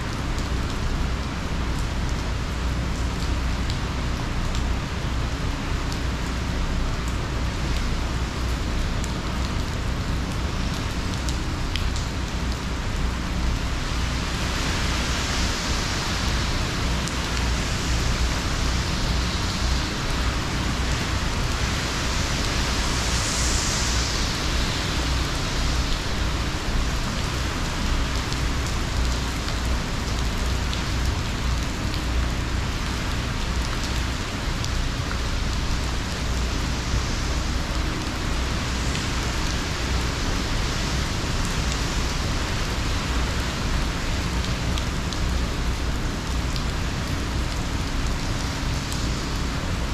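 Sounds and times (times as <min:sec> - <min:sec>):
heavy rain pouring on pool: 0:00.0 - 0:49.9
steady low rumble: 0:00.0 - 0:49.9.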